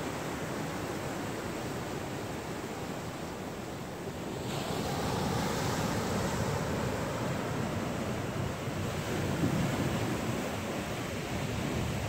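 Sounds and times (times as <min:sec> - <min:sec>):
ocean waves breaking: 0:04.0 - 0:12.0.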